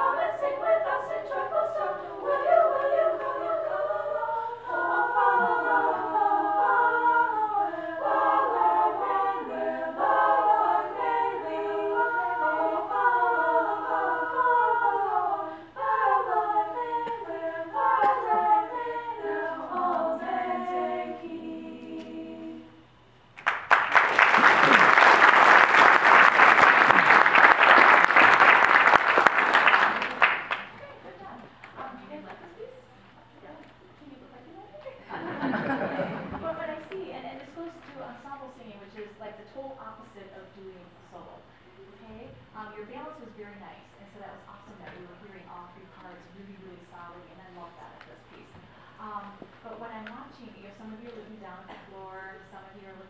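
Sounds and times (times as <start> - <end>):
women singing a cappella harmony: 0.0 - 23.0
audience applause: 23.4 - 30.8.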